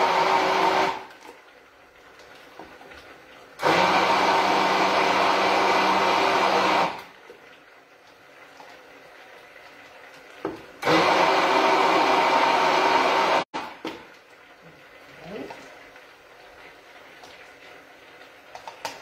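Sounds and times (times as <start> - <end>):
electric blender running: 0.0 - 1.1, 3.6 - 7.1, 10.8 - 13.7.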